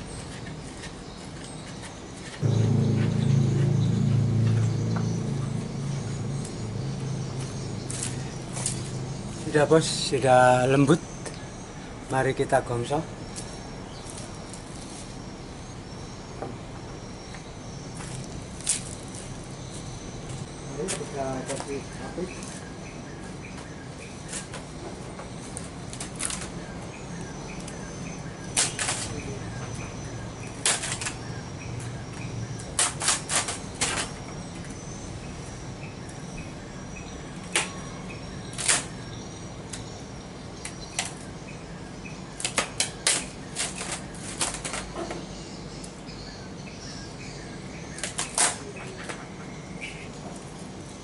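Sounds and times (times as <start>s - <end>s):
charcoal fire cracking: 25.5s - 29.8s, 30.5s - 31.4s, 32.6s - 34.4s, 42.3s - 45.0s, 48.0s - 48.8s.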